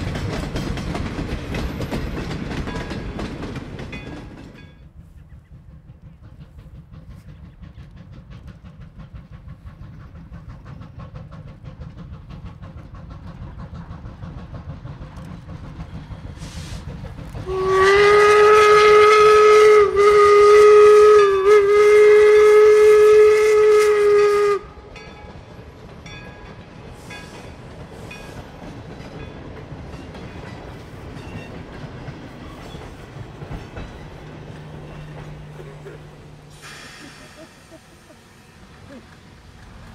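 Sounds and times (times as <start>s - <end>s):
steam locomotive exhaust beat: 0.0s - 39.9s
steam whistle blast: 17.4s - 24.9s.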